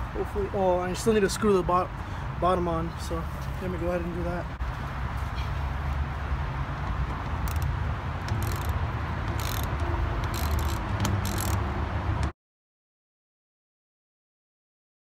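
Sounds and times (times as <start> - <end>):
screw scratchy clicks: 7.1 - 11.7.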